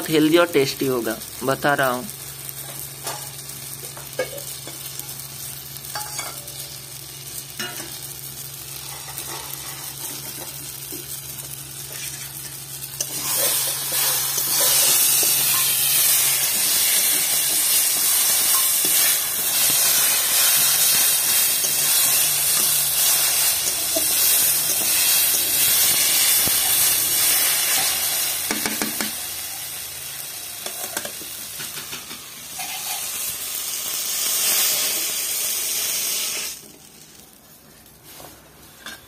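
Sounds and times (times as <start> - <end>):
vegetables sizzling in a pan: 0.0 - 39.0
metal spatula scraping a pan: 8.8 - 10.4, 11.8 - 28.1, 32.6 - 33.2.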